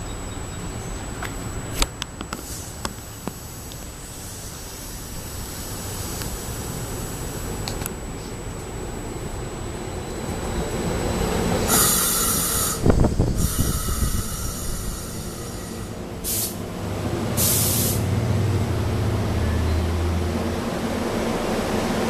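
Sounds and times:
air hissing: 2.3 - 7.5, 11.7 - 16.7, 17.4 - 18.0
electric train pulling in: 2.4 - 22.0.

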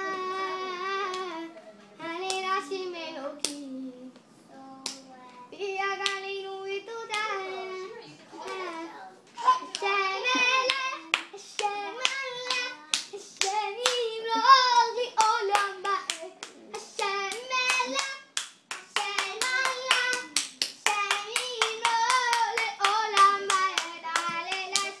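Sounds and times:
hands clapping: 9.6 - 25.0.

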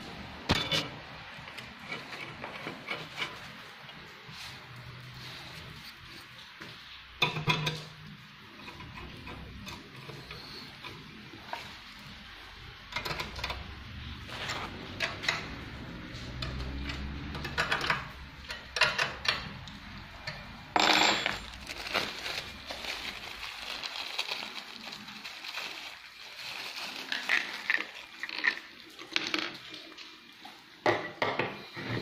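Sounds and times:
small metal parts clinking: 20.8 - 21.8.

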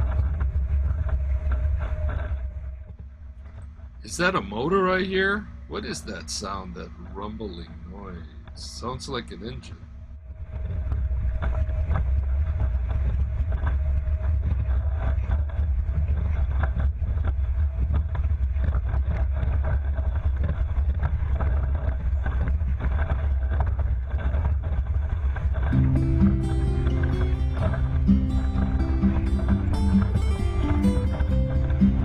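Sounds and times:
wind on the microphone: 10.2 - 25.8.

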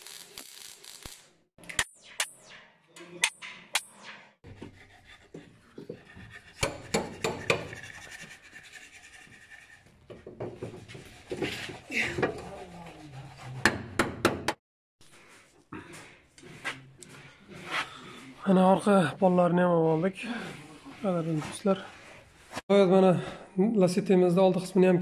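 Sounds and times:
hammer and chisel on sheet metal: 3.0 - 8.1, 10.1 - 12.8, 13.5 - 14.6.

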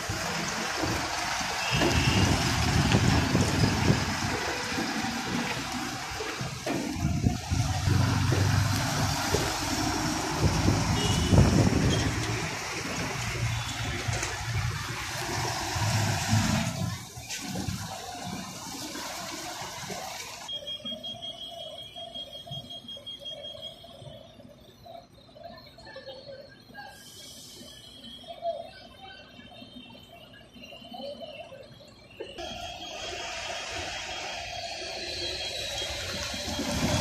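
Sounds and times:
bus engine rumble: 0.0 - 20.5, 25.7 - 37.0
faint high whine: 20.5 - 36.7
loud rushing hiss: 32.4 - 37.0.

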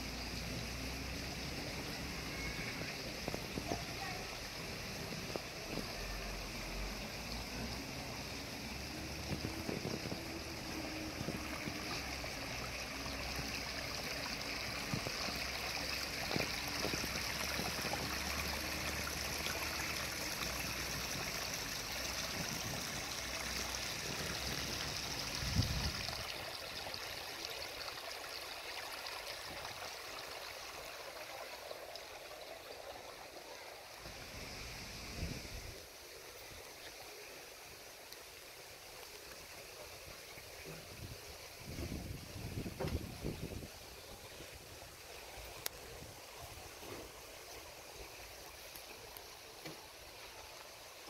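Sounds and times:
stream trickling over rocks: 0.0 - 51.0
thump: 42.8 - 43.1.

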